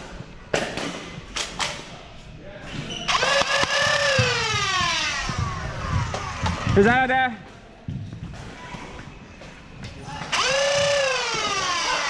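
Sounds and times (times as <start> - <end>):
blaster sharp clacks: 3.1 - 6.6
flywheel motors whining: 10.2 - 12.0.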